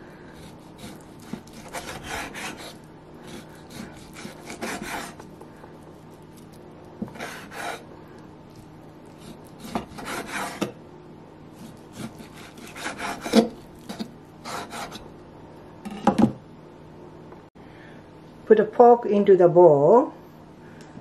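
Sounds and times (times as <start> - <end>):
knife sawing through meat: 0.3 - 5.3, 7.1 - 7.9, 9.1 - 10.7, 11.6 - 15.0.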